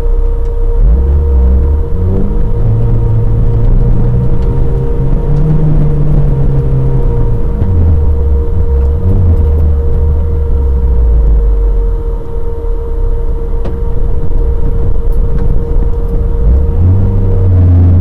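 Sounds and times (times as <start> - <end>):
off-road vehicle engine running: 0.0 - 18.0.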